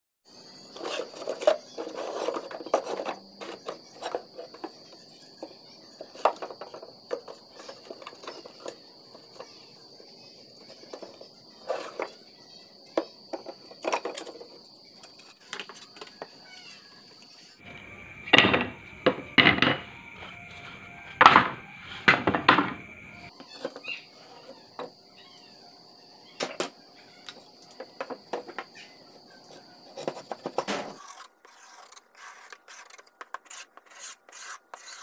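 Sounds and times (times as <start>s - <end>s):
steady high-pitched tone: 17.6s - 23.3s
wood offcuts clattering: 17.7s - 22.9s.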